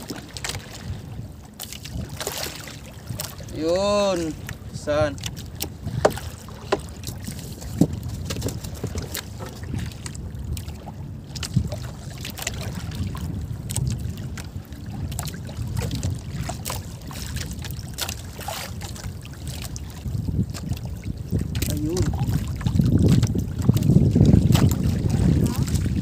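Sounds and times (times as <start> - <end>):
water lapping against boat: 0.0 - 26.0
wind on microphone: 0.0 - 26.0.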